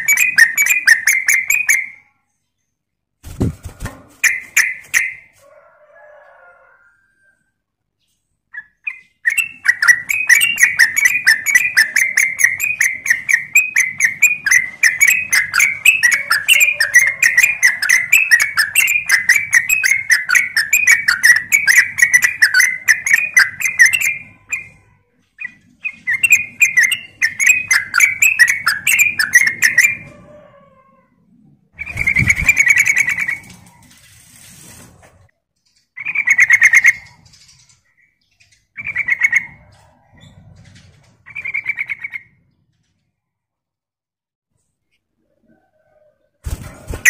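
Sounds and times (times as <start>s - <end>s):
bird chattering calls: 41.3s - 42.3s.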